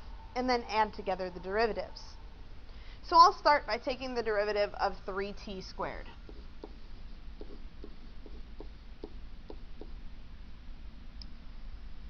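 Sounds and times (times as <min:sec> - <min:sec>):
steady low hum: 0:00.0 - 0:12.0
stylus tapping on pen tablet: 0:06.3 - 0:10.0.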